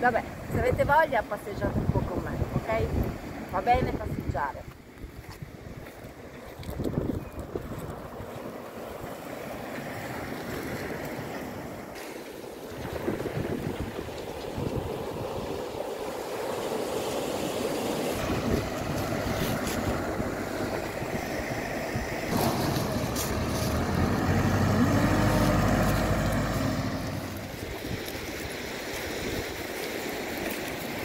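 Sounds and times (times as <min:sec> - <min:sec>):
surf on pebble shore: 0:00.0 - 0:31.0
wind on microphone: 0:00.4 - 0:09.1, 0:12.7 - 0:16.3, 0:17.8 - 0:30.8
diesel engine revving: 0:20.0 - 0:27.6.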